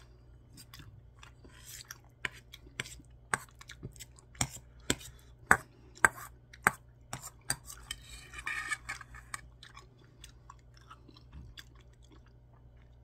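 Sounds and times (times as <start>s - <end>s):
chewing: 0.0s - 4.8s, 9.0s - 13.0s.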